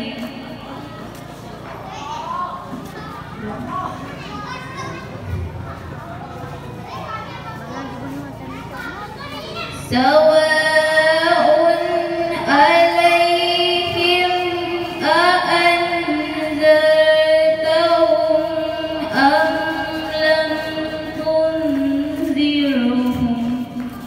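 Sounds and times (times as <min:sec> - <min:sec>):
woman chanting recitation: 0:09.8 - 0:24.0.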